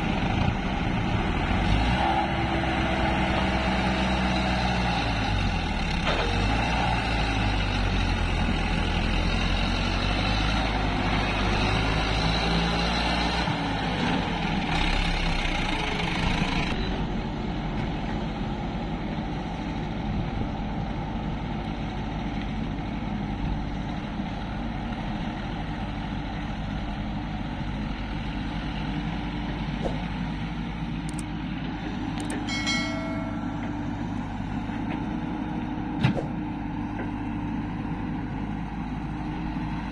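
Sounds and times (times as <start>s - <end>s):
diesel engines running: 0.0s - 39.9s
brief high-pitched tone: 32.5s - 34.0s.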